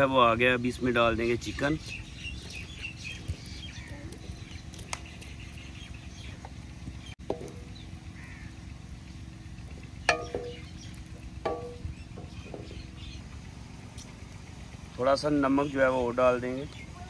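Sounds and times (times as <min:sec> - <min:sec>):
faint bird calls: 0:01.6 - 0:14.7.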